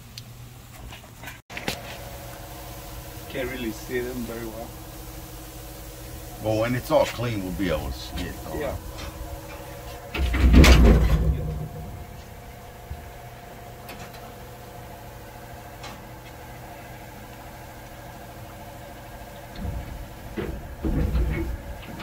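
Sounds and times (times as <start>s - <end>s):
machine humming: 1.5s - 22.0s
loud rumbling thud: 10.1s - 12.5s.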